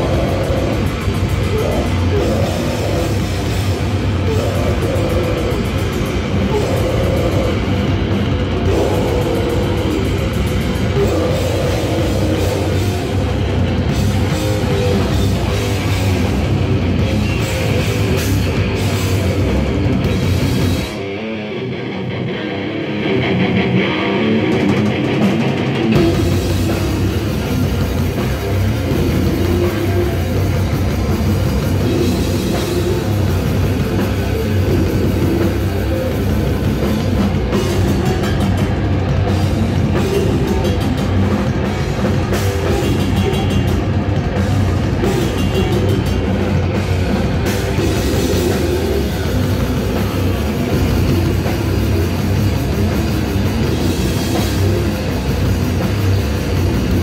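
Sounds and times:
metal band playing live: 0:00.0 - 0:57.0.

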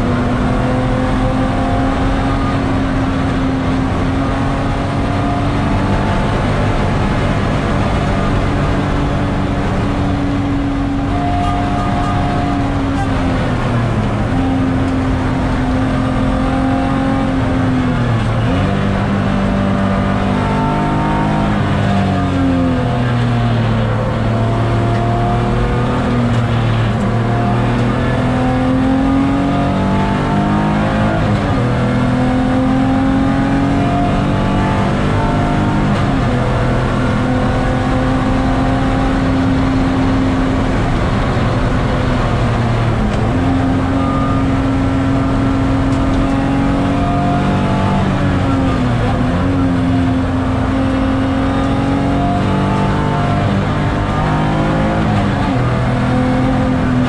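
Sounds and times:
car engine revving: 0:00.0 - 0:57.0
road and wind noise: 0:00.0 - 0:57.0.

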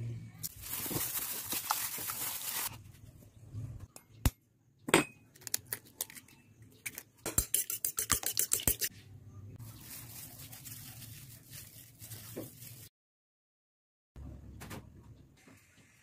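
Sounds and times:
handling rustle: 0:00.5 - 0:02.8
fork beating egg in bowl: 0:07.3 - 0:08.9.

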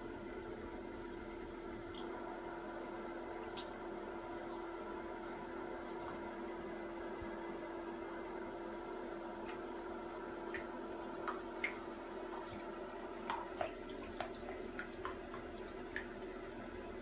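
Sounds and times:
water drips and plinks: 0:09.4 - 0:16.5.

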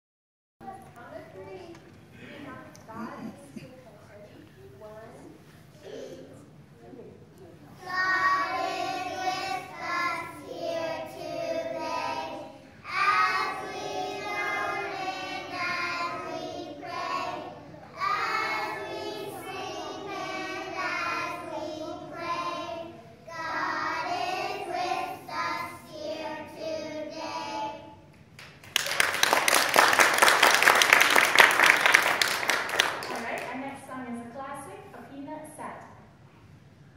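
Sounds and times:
young children singing: 0:07.8 - 0:28.1
audience clapping: 0:28.4 - 0:33.6.

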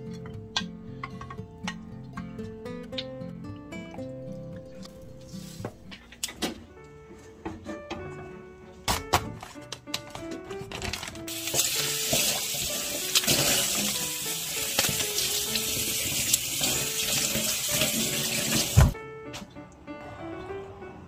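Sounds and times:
soft background music: 0:00.0 - 0:21.0
tap running into a sink: 0:11.4 - 0:19.0.

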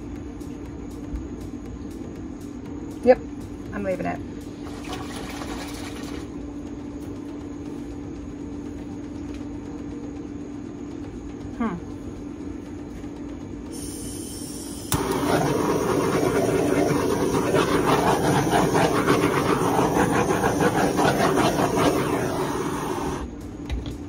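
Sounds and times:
soft gas hiss: 0:13.6 - 0:23.4
torch flame rushing hiss: 0:13.7 - 0:23.4.

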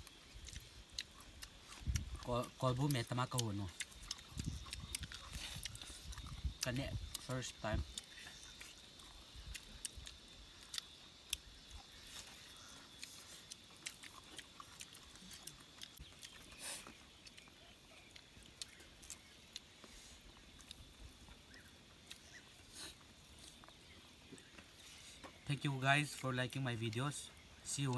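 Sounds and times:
people chewing: 0:00.0 - 0:27.9.

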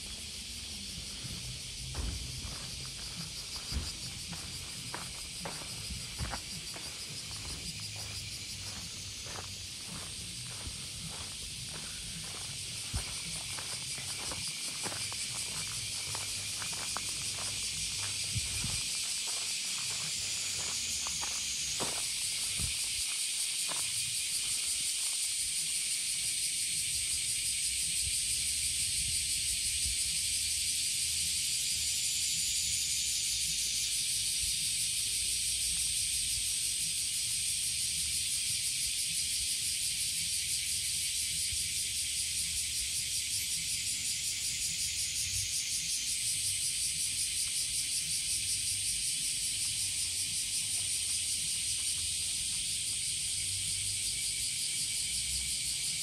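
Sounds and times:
cicadas buzzing: 0:00.0 - 0:56.0.

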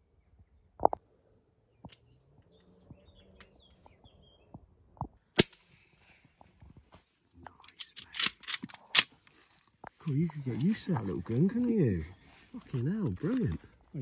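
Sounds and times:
suppressed shotgun shots: 0:05.4 - 0:05.8.

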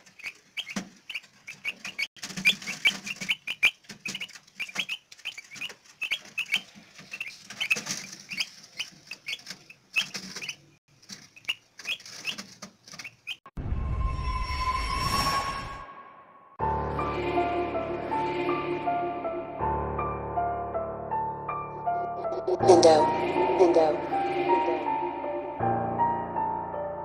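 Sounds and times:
chicks peeping: 0:00.0 - 0:13.5.

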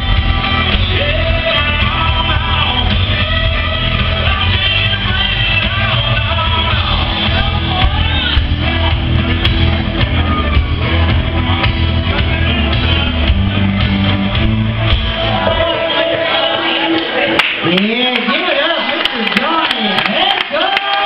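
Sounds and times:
heavy bass beat: 0:00.0 - 0:16.4
live country-rock band: 0:00.0 - 0:17.7
man singing and shouting: 0:00.3 - 0:09.0.

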